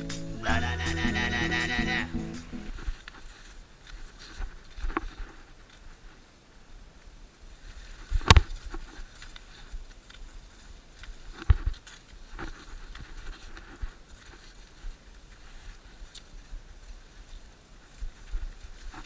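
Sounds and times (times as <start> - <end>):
skis scraping over snow: 2.7 - 6.6, 7.2 - 19.0
ski pole patter: 7.8 - 19.0.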